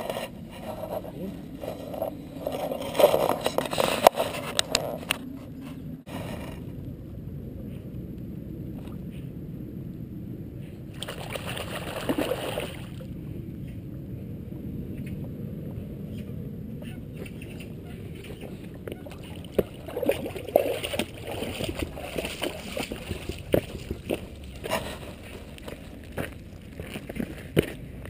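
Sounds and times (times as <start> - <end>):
steady low water sound: 0.0 - 28.0
dog splashing in water: 11.0 - 13.0, 19.0 - 24.1.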